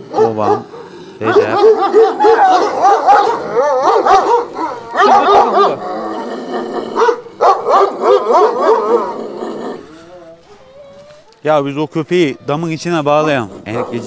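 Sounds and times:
dog whining and yelping: 0:00.2 - 0:05.8, 0:07.0 - 0:09.2, 0:10.1 - 0:11.4.

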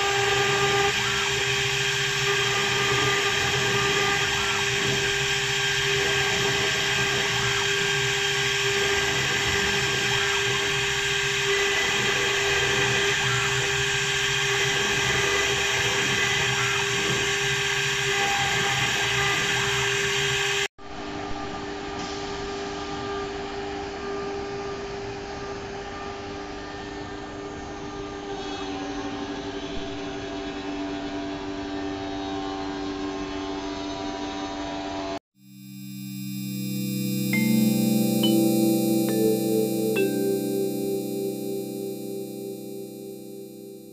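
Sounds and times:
machine hum with tones: 0:35.4 - 0:43.9.

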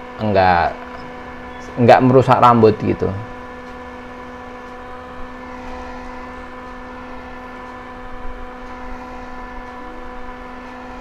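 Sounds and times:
small electric fan humming: 0:00.0 - 0:11.0.

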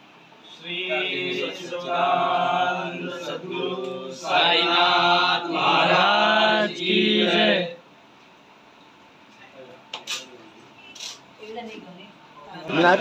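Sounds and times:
voices chanting together: 0:00.5 - 0:07.8.

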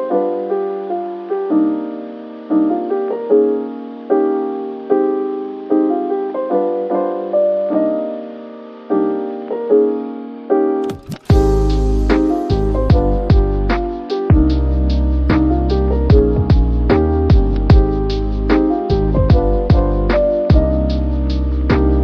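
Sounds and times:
soft piano chords: 0:00.0 - 0:22.0.

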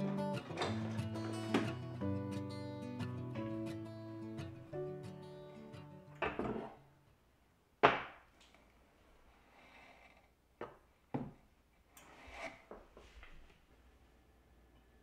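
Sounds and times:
knocks on wooden tabletop: 0:06.2 - 0:06.7.

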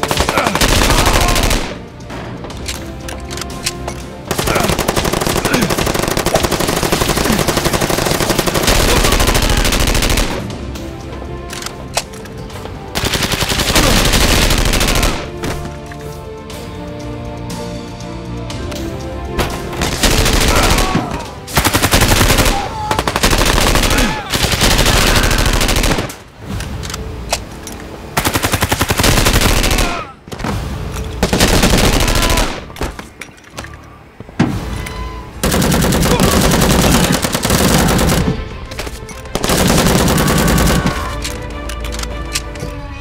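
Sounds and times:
rapid automatic gunfire: 0:00.0 - 0:01.8, 0:04.3 - 0:10.4, 0:13.0 - 0:15.3, 0:21.6 - 0:26.1, 0:28.2 - 0:30.0, 0:31.3 - 0:32.6, 0:35.4 - 0:38.3, 0:39.4 - 0:41.0
background music: 0:00.0 - 0:43.0.

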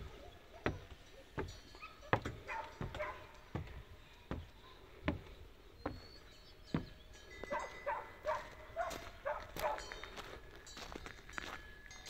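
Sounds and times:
footsteps on wooden stairs: 0:00.0 - 0:07.6
dog barking: 0:01.8 - 0:03.3, 0:07.5 - 0:09.9.

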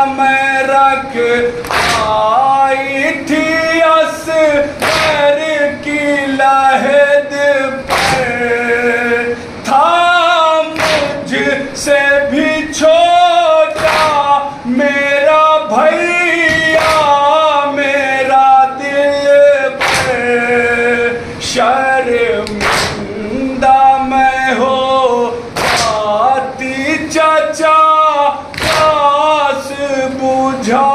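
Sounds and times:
men chanting a lament: 0:00.0 - 0:30.9
chest-beating slaps: 0:01.6 - 0:02.2, 0:04.8 - 0:05.3, 0:07.9 - 0:08.4, 0:10.8 - 0:11.2, 0:13.8 - 0:14.2, 0:16.5 - 0:17.2, 0:19.8 - 0:20.2, 0:22.4 - 0:23.0, 0:25.6 - 0:26.0, 0:28.5 - 0:29.0.

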